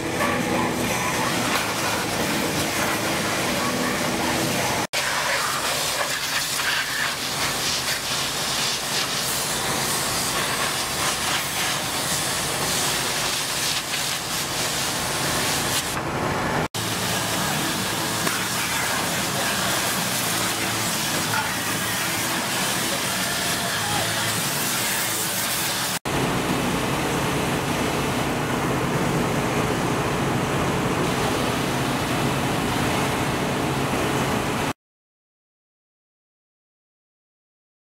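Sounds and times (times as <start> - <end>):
pressure washer spraying water: 0.0 - 16.0, 16.8 - 26.0.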